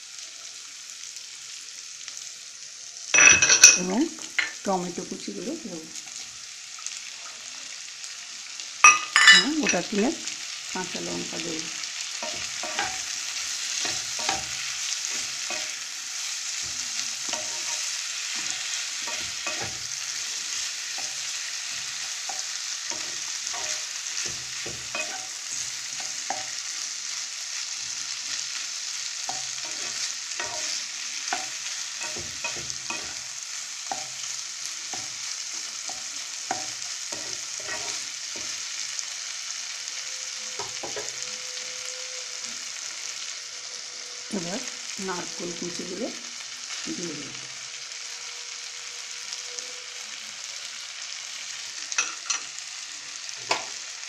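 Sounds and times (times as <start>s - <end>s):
vegetables sizzling in oil: 0.0s - 54.0s
spatula knocking and scraping pan: 12.2s - 26.8s, 29.2s - 38.6s.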